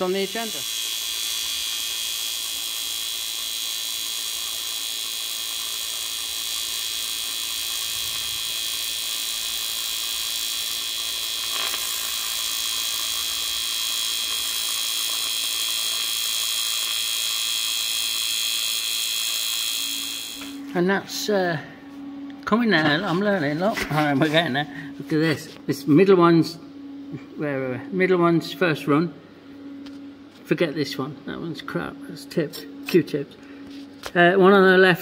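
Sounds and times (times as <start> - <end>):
welding arc hissing and whining: 0.0 - 21.6, 22.3 - 26.6.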